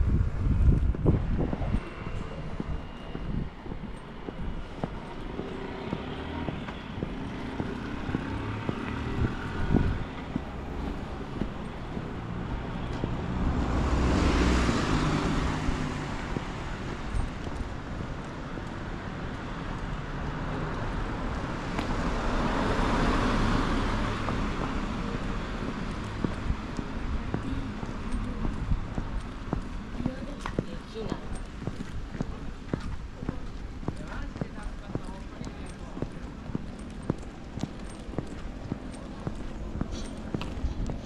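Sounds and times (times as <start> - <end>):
cars passing by: 0.0 - 41.0.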